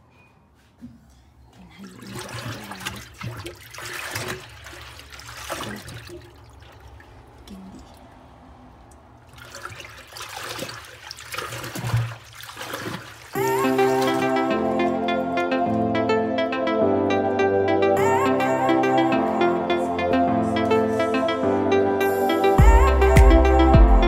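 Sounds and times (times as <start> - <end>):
water splashing in washing machine: 1.8 - 14.2.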